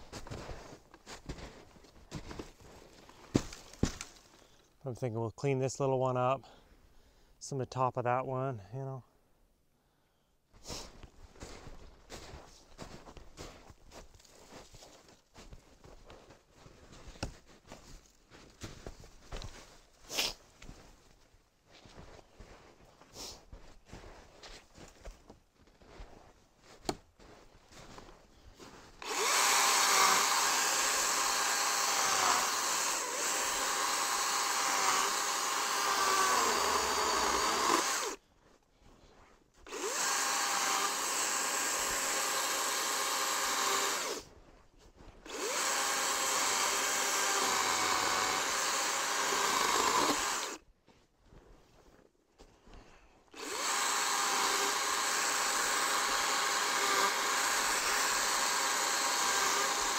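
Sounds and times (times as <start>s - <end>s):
electric chainsaw cutting log: 29.0s - 38.2s, 39.7s - 44.3s, 45.3s - 50.6s, 53.4s - 59.9s.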